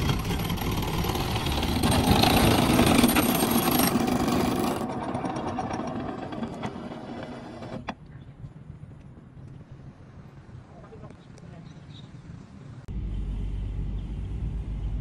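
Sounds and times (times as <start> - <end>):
boat engine running: 0.0 - 7.8, 12.9 - 15.0.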